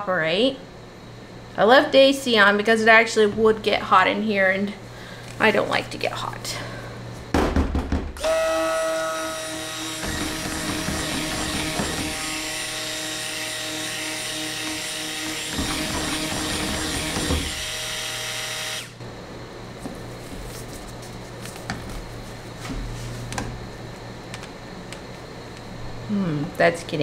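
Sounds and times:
stick blender motor whine: 8.2 - 19.0.

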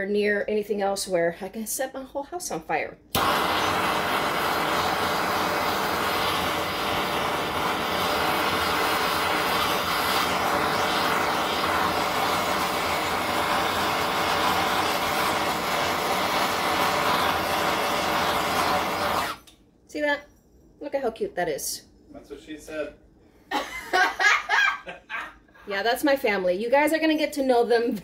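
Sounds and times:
torch flame hissing: 3.1 - 19.5.

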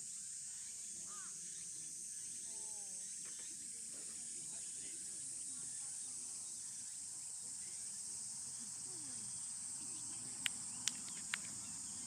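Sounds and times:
insects droning: 0.0 - 12.0
sharp clicks: 10.4 - 11.6.

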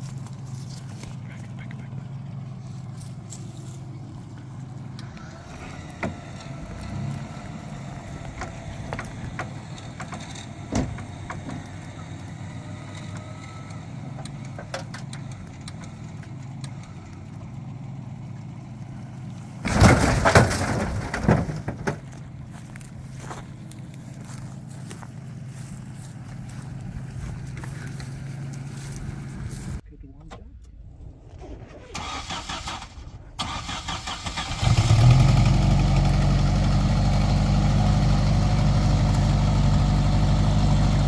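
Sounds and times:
vehicle engine running: 0.0 - 31.2, 32.8 - 41.0
vehicle crashing onto wheels: 19.6 - 22.9.

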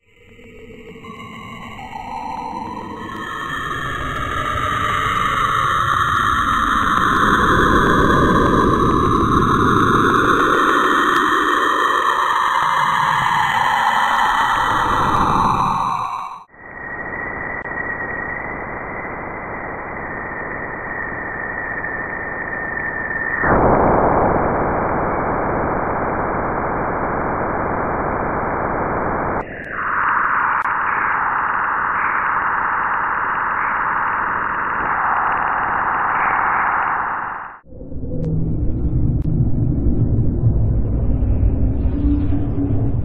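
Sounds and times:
steady high whistle: 1.0 - 24.7, 29.4 - 37.6
static-like hiss: 23.5 - 37.6.

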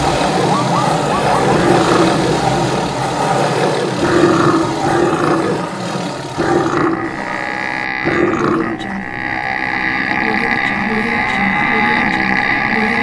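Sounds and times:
cartoon animal calls: 0.0 - 13.0
noisy din of herd: 0.0 - 13.0.

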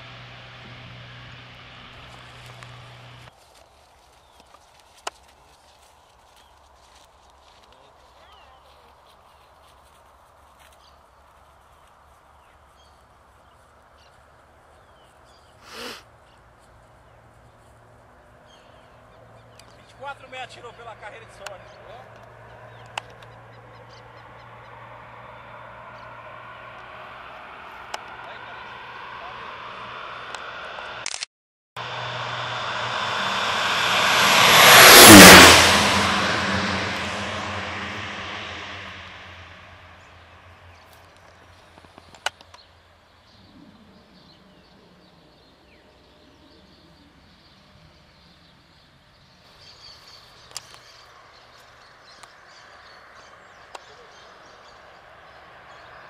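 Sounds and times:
turboprop plane droning: 0.0 - 3.3, 18.6 - 31.0, 31.8 - 40.8
short loud rushing noise: 29.4 - 40.1.

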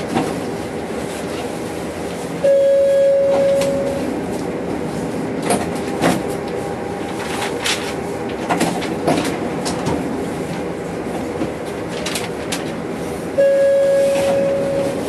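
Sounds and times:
tram humming: 0.0 - 15.0
long beep: 2.4 - 4.1, 13.4 - 15.0.

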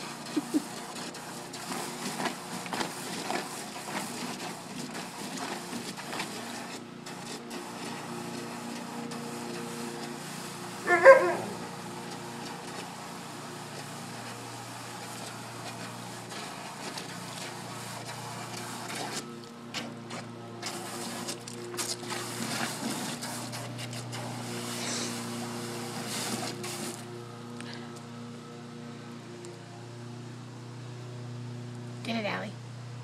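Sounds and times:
dog splashing in water: 0.0 - 10.2, 13.8 - 27.1
dog bark: 10.9 - 11.6.

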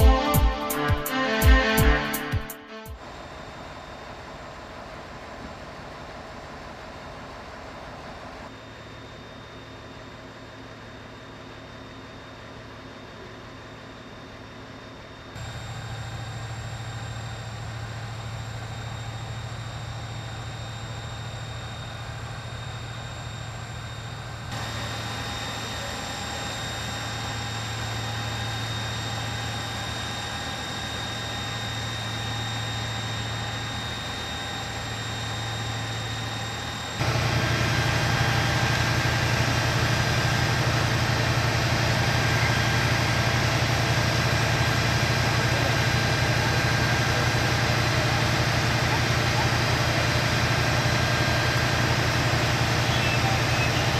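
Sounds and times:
vehicle engines idling: 37.0 - 53.9.

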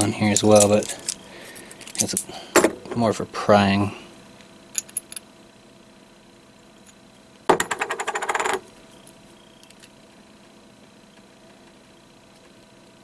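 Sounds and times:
small metal tools clinking: 0.0 - 2.3, 4.7 - 5.2.

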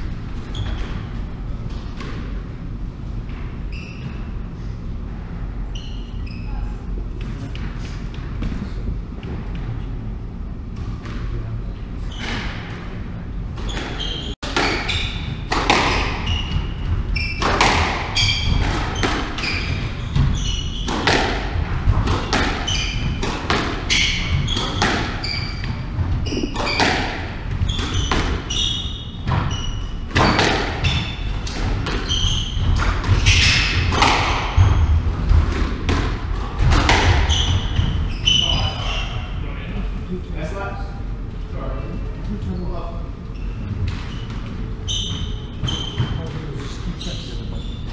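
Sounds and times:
shoes squeaking on wooden floor: 13.6 - 21.2, 22.6 - 35.1, 37.1 - 39.3, 43.3 - 47.9
squash ball cracking off rackets: 26.3 - 28.4.

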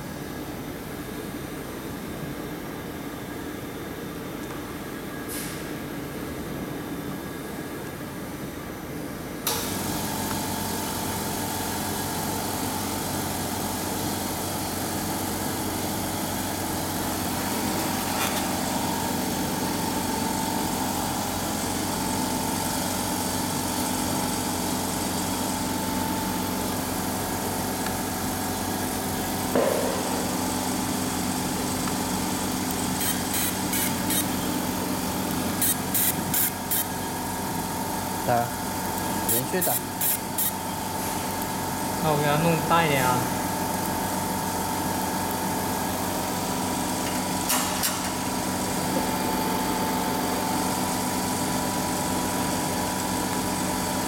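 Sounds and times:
air compressor running: 9.4 - 54.0.

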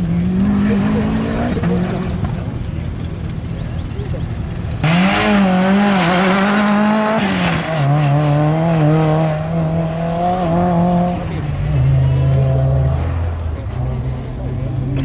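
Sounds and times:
car engine revving high: 0.0 - 2.6, 4.6 - 15.0.

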